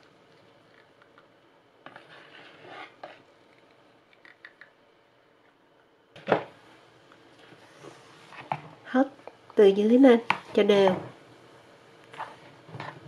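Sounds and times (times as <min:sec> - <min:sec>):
spatula scraping mixing bowl: 0:01.9 - 0:03.2.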